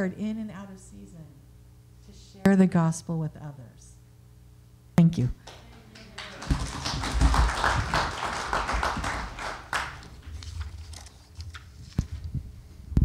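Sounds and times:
crowd applauding: 0:05.4 - 0:10.3.

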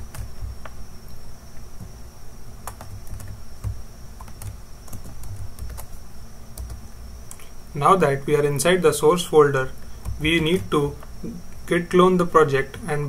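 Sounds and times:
keyboard typing: 0:00.0 - 0:00.8, 0:02.6 - 0:07.5, 0:10.0 - 0:11.1.

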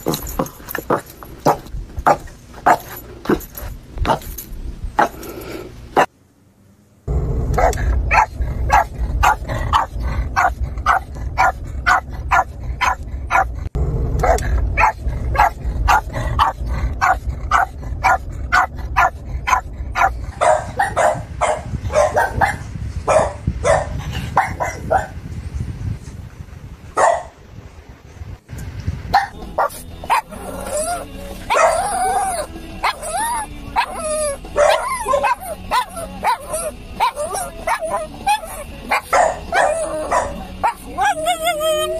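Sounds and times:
low background rumble: 0:00.0 - 0:41.9
dog barking rapidly: 0:00.9 - 0:03.0, 0:07.6 - 0:13.5, 0:14.2 - 0:25.2, 0:27.0 - 0:27.3, 0:29.2 - 0:41.9.

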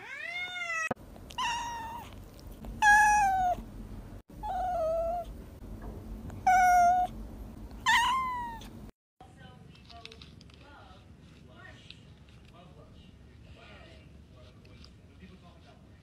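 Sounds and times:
cat meowing: 0:00.0 - 0:03.6, 0:04.4 - 0:05.3, 0:06.4 - 0:07.1, 0:07.8 - 0:08.7.

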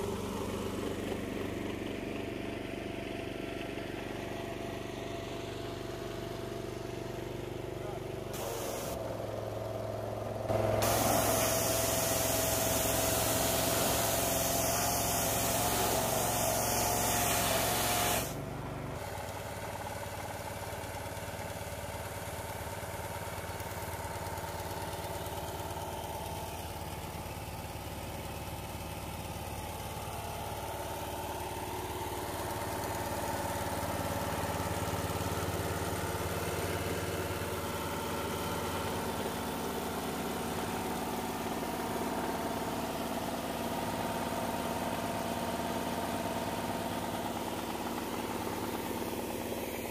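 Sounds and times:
pressure washer engine running: 0:00.0 - 0:49.9
water jet spraying hiss: 0:08.4 - 0:09.0, 0:10.8 - 0:18.4.

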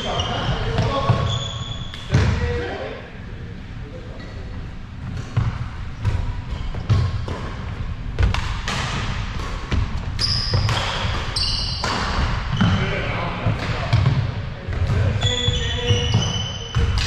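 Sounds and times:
shoe squeaks: 0:00.0 - 0:02.0, 0:10.2 - 0:11.9, 0:15.2 - 0:16.8
racket hitting shuttlecock: 0:08.2 - 0:12.4.

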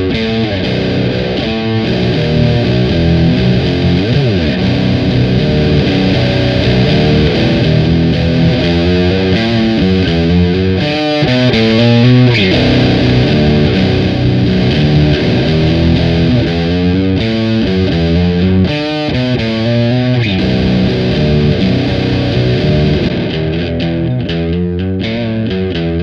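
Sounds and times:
distorted electric guitar riff: 0:00.0 - 0:26.0.

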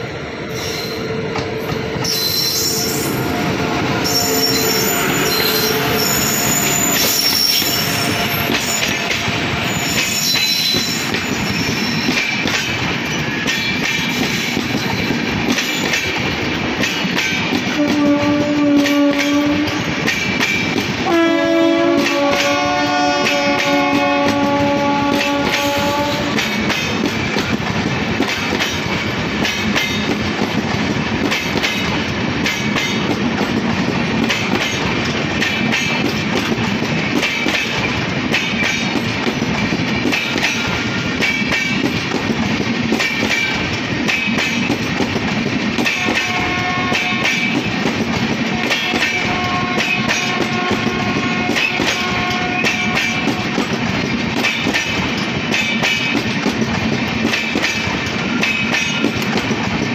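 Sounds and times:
train wheels clickety-clack: 0:00.0 - 0:59.9
train horn: 0:00.9 - 0:09.2, 0:17.7 - 0:19.9, 0:21.0 - 0:26.4, 0:45.9 - 0:47.5, 0:48.5 - 0:53.6
high wheel squeal: 0:02.0 - 0:03.4, 0:04.0 - 0:12.2.

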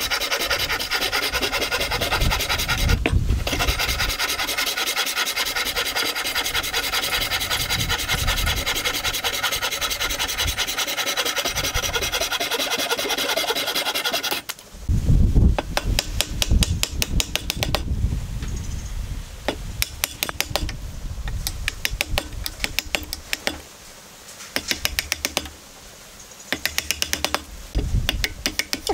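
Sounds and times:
hand saw rasping through wood: 0:00.0 - 0:14.5
chisel knocks and clicks: 0:19.5 - 0:20.8, 0:21.4 - 0:23.6, 0:24.6 - 0:25.5, 0:26.5 - 0:27.5, 0:28.1 - 0:28.9.

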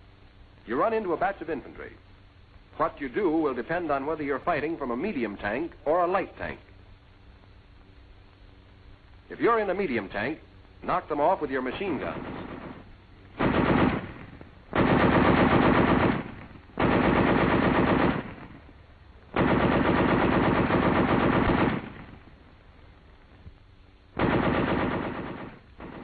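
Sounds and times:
machine gun bursts: 0:13.4 - 0:18.6, 0:19.4 - 0:22.2, 0:24.2 - 0:26.0.

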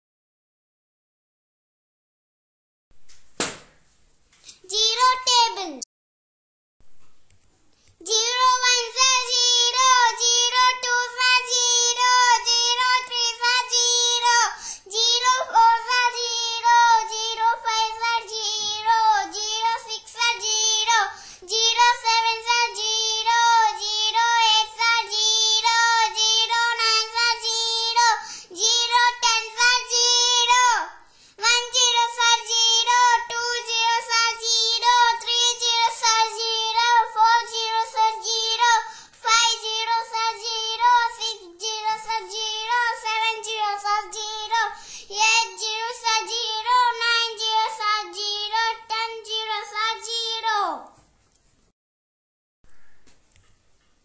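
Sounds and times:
child singing sing-song chant: 0:08.0 - 0:51.0.

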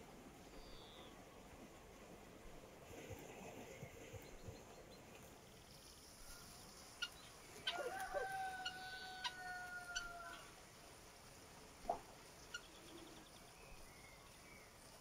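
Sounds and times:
rooster crowing: 0:07.6 - 0:10.5.

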